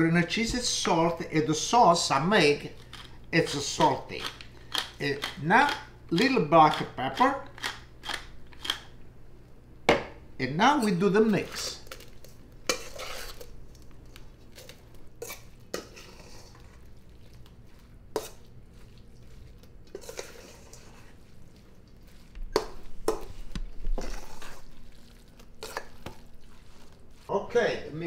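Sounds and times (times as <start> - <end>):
utensil stirring rice in bowl: 11.3 - 13.9, 14.5 - 27.3.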